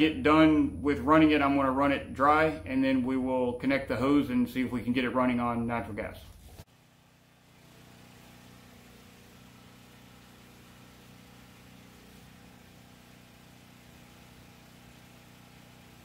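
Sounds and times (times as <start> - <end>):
generator engine running: 6.7 - 16.0.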